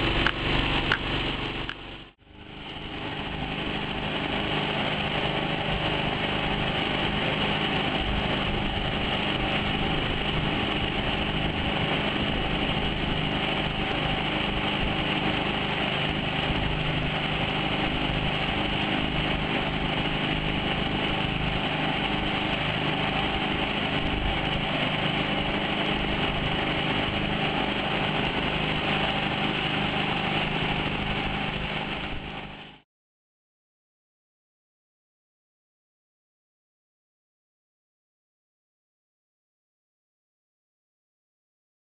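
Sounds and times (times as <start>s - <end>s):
outboard engine running: 0.0s - 32.8s.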